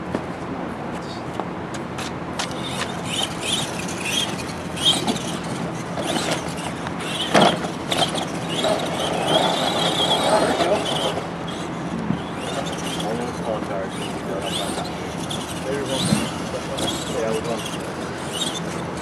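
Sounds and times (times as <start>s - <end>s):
rc truck motors whining: 2.4s - 19.0s.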